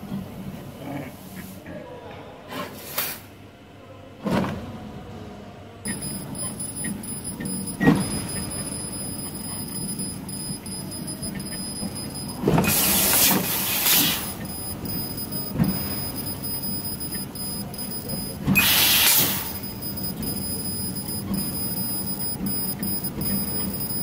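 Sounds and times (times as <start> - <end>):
low machine hum: 5.9 - 12.5, 14.2 - 18.6, 19.2 - 24.0.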